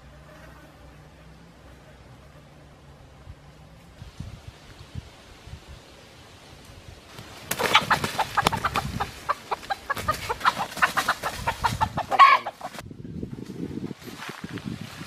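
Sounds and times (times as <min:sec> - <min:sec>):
rooster clucking: 0:07.5 - 0:12.8
rooster squawk: 0:07.6 - 0:12.7.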